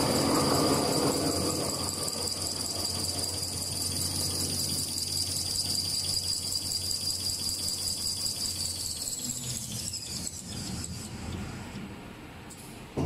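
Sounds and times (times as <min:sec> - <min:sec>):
machine low hum: 0:00.0 - 0:09.6
machine high-pitched whine: 0:00.0 - 0:11.8.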